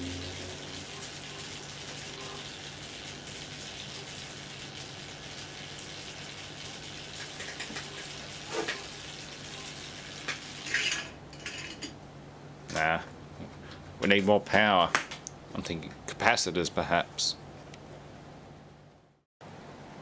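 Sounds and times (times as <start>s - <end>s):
low transformer hum: 0.0s - 2.6s
electric arc sizzling crackle: 0.0s - 11.1s.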